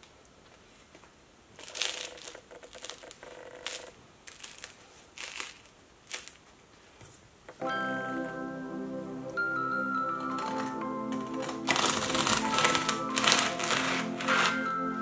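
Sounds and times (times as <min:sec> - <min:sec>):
bread crust crunches: 0:01.6 - 0:06.5
bread crust crackling: 0:01.6 - 0:06.6.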